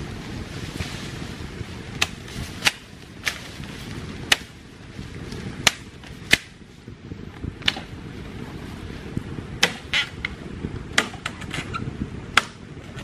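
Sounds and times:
machete chopping bamboo: 0:02.0 - 0:03.4, 0:04.3 - 0:04.6, 0:05.6 - 0:06.6, 0:07.6 - 0:07.9, 0:09.6 - 0:09.9, 0:10.9 - 0:11.4, 0:12.3 - 0:12.6.

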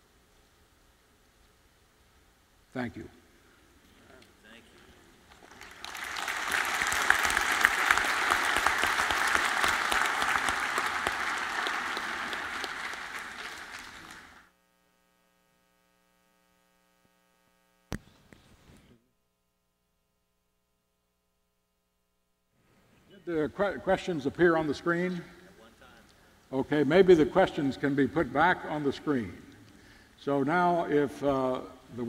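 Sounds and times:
faint steady hum: 0:00.0 - 0:32.0
audience applauding: 0:05.3 - 0:14.5.

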